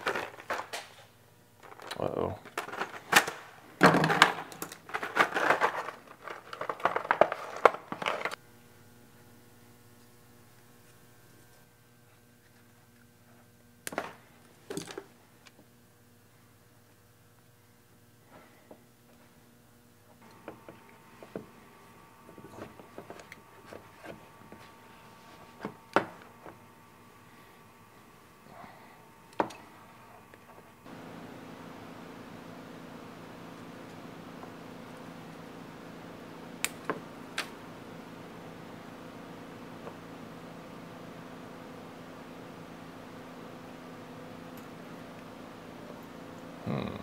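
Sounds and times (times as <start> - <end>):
faint steady hum: 0.0 - 47.0
paper and cardboard rustling: 4.9 - 8.4.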